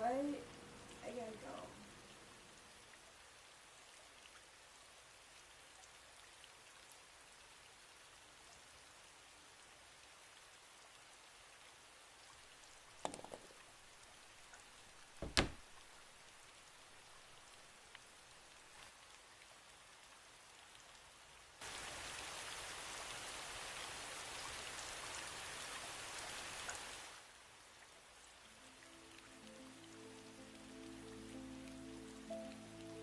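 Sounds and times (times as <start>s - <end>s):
rain pattering: 0.0s - 33.0s
clatter of small knocks: 13.0s - 13.6s
heavy wooden door thud: 15.2s - 15.8s.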